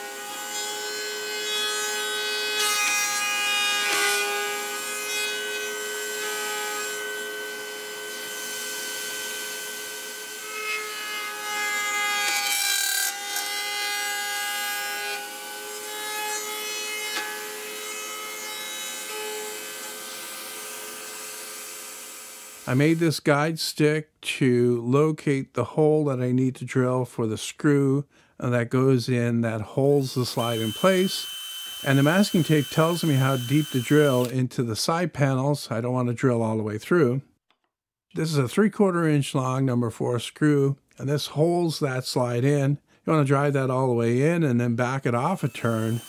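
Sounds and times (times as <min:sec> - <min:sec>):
router bit cutting wood: 0:00.0 - 0:23.0, 0:29.9 - 0:34.3, 0:45.2 - 0:46.0
router whining: 0:30.0 - 0:34.3, 0:45.4 - 0:46.0.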